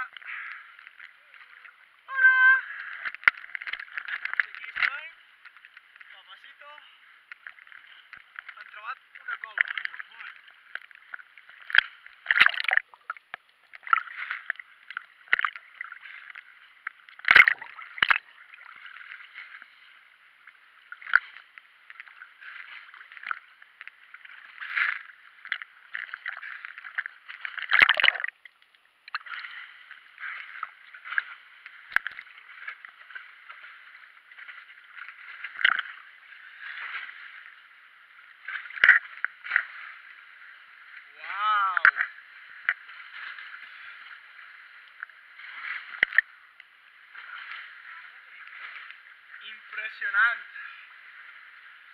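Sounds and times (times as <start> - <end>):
sea water lapping and sloshing: 0.0 - 51.9
sharp splashes or knocks: 11.6 - 13.2, 17.2 - 18.3, 24.5 - 28.4.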